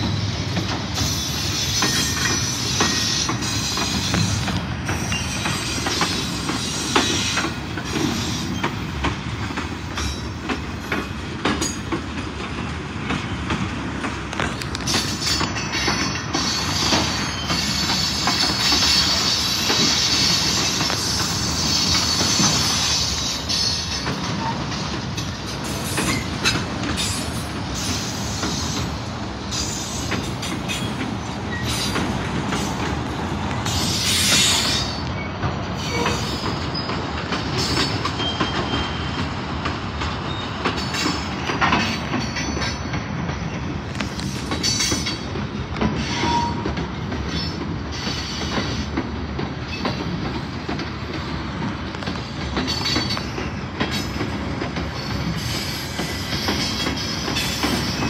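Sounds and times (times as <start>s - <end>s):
steel wheels rumbling on rail: 0.0s - 58.0s.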